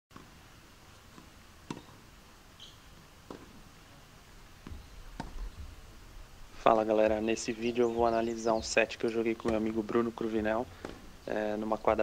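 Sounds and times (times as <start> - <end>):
faint outdoor ambience: 0.1 - 12.0
tennis ball hits: 1.1 - 2.0, 3.2 - 3.6, 4.6 - 5.6, 9.4 - 11.8.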